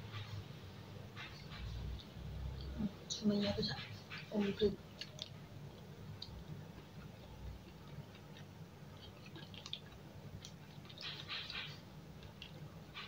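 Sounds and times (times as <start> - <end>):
crackly rustle: 0.0 - 13.0
wet mouth clicks: 4.2 - 13.0
person chewing food: 4.8 - 13.0.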